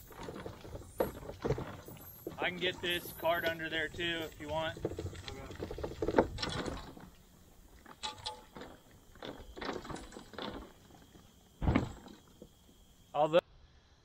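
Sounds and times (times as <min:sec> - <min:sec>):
light clicks and knocks of gear: 0:00.0 - 0:13.1
loud thump: 0:11.6 - 0:12.1.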